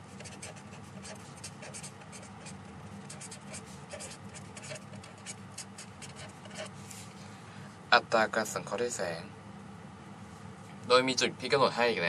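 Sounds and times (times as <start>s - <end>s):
marker scratching on paper: 0.1s - 6.8s.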